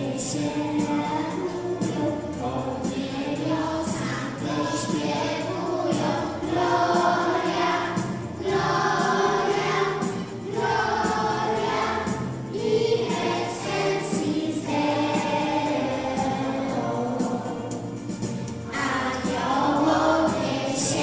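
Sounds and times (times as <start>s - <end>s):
children singing a carol: 0.0s - 18.1s, 18.7s - 21.0s
instrumental backing music: 0.0s - 21.0s.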